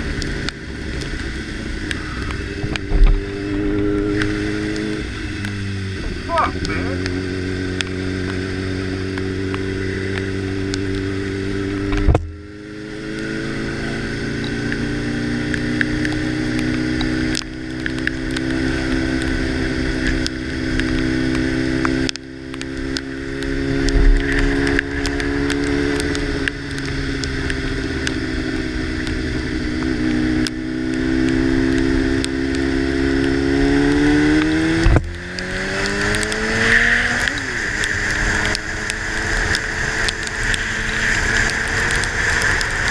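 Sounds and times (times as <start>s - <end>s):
motorcycle engine shifting gears: 0.0s - 42.9s
hiss of tyres on wet road: 35.6s - 42.9s.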